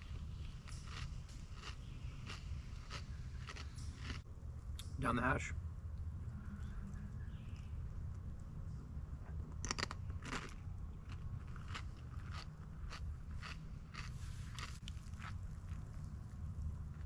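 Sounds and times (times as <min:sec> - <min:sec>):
person chewing crunchily: 0:00.0 - 0:04.2, 0:09.6 - 0:16.4.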